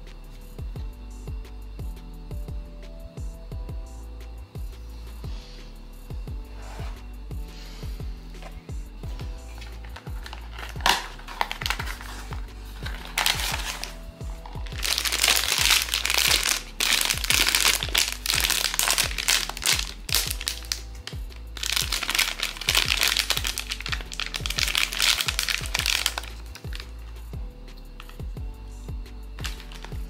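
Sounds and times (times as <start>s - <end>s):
background music: 0.0s - 30.0s
plastic packaging crinkling: 9.5s - 27.1s, 29.4s - 30.0s.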